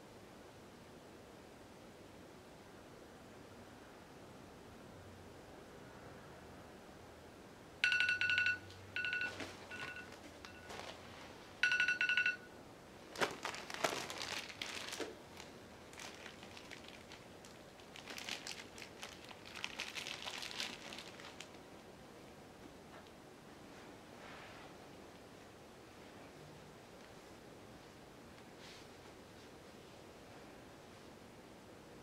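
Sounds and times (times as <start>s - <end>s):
phone timer alarm ringtone: 7.8s - 10.8s, 11.6s - 12.6s
plastic bags crinkling: 9.2s - 11.0s, 13.1s - 21.6s.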